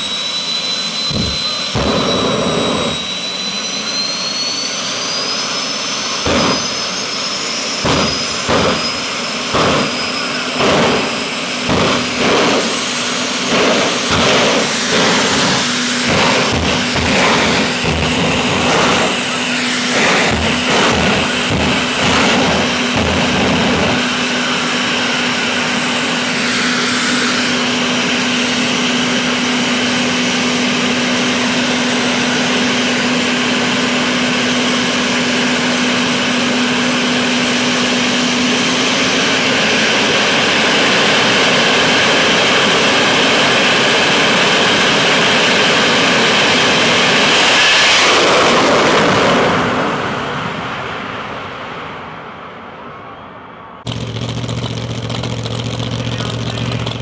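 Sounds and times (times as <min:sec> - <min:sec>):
turbine engine whining: 0:00.0 - 0:57.0
jet car launching blast: 0:00.4 - 0:28.7, 0:44.5 - 0:55.0.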